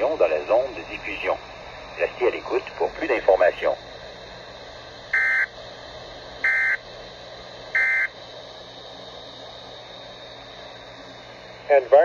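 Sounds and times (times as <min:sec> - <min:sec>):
faint broadcast hiss: 0:00.0 - 0:12.0
buzzing digital data tones: 0:07.7 - 0:08.2.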